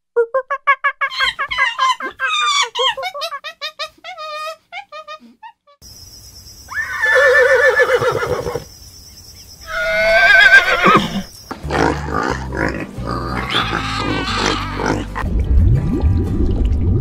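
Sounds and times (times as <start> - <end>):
pigs grunting and squealing: 1.1 - 5.4, 9.7 - 15.2
horse whinnying: 6.7 - 8.6, 9.7 - 11.3, 13.4 - 15.2.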